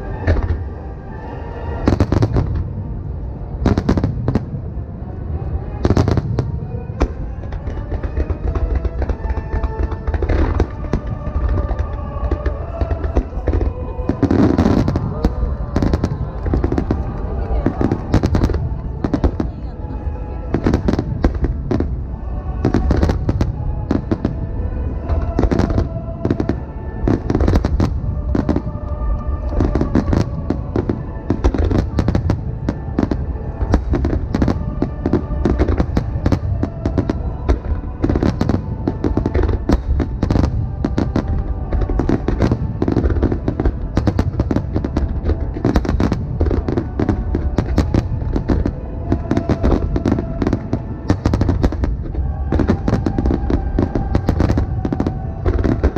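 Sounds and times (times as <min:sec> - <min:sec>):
music playing: 0:00.0 - 0:55.9
fireworks booming and cracking: 0:01.8 - 0:04.8, 0:05.8 - 0:19.8, 0:20.4 - 0:55.9.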